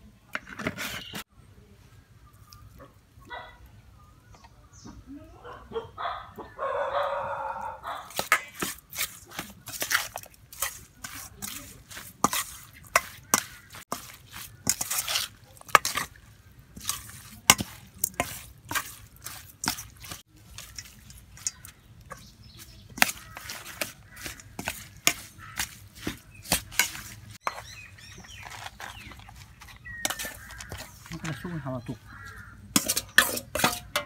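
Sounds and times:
metal spoon stirring wet mixture: 7.9s - 34.0s
spoon clinking against steel bowl: 32.7s - 34.0s.

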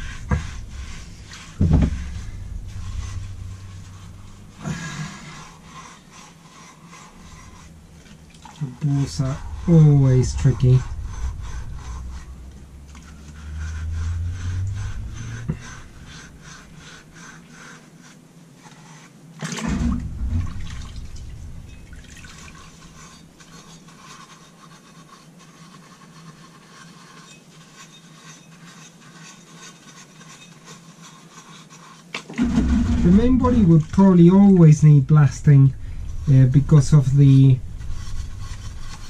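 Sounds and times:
thump: 1.6s - 3.2s, 19.6s - 23.2s, 32.4s - 33.7s
liquid dripping and trickling: 8.0s - 8.8s, 19.6s - 23.1s.

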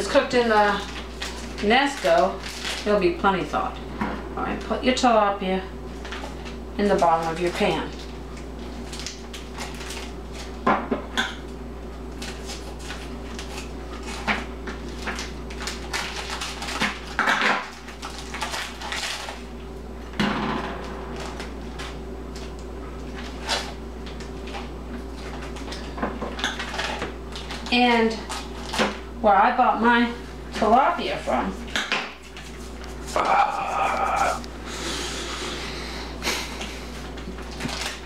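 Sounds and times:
plastic wrapping crinkling: 0.1s - 3.2s, 7.0s - 10.6s, 12.1s - 19.5s, 21.1s - 28.8s, 37.1s - 38.0s.

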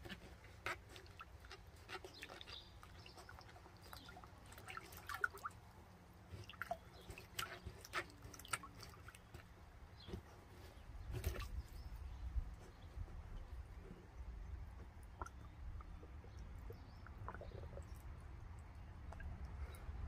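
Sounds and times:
water dripping and splashing: 0.0s - 10.2s, 14.7s - 20.0s.

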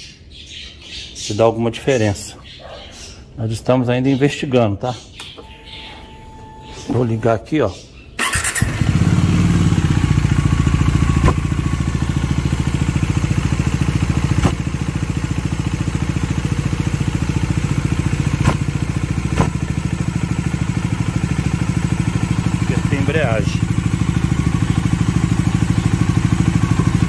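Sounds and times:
motorcycle starter cranking: 8.2s - 11.6s
motorcycle engine idling: 8.2s - 27.0s
sharp engine knocks: 14.3s - 14.7s, 18.3s - 19.6s.

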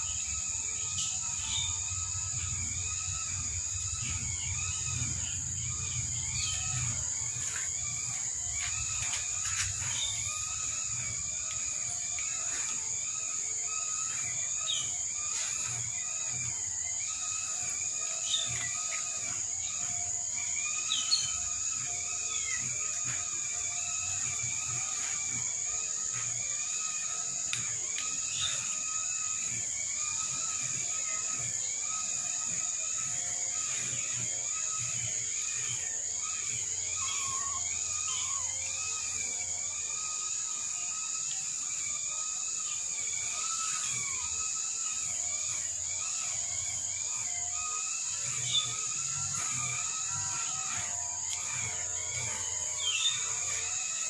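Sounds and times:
short high arched calls: 0.0s - 54.0s
steady high hiss: 0.0s - 54.0s
small clicks: 6.3s - 12.9s, 22.4s - 28.8s, 48.1s - 53.8s.

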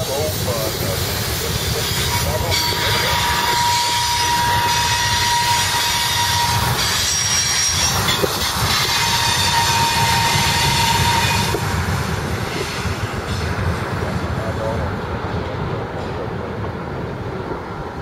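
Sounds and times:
freight train rolling on rails: 0.0s - 18.0s
wind buffeting microphone: 0.0s - 18.0s
train wheel squeals: 1.5s - 11.6s.

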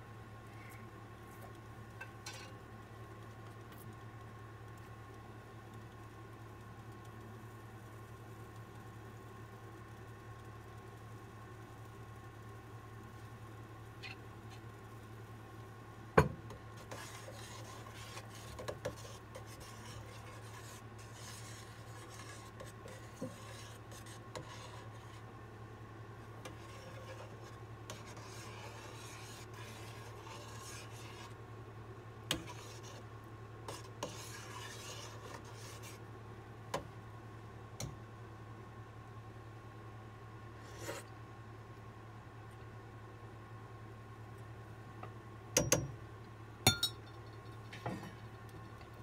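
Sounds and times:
spoon scraping a skillet: 2.0s - 2.6s, 16.8s - 25.3s, 26.4s - 31.4s, 32.3s - 33.1s, 33.7s - 36.0s.

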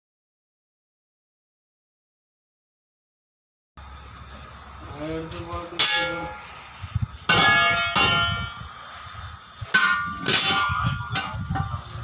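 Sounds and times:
metal rim ring clanging: 5.5s - 6.6s, 7.3s - 8.8s, 9.6s - 12.0s.

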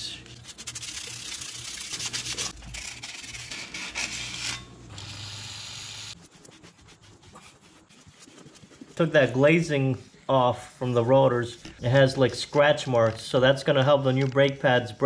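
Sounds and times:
sandpaper scrubbing metal rotor: 0.0s - 4.6s, 5.2s - 12.8s
faint rubbing: 6.1s - 13.4s.

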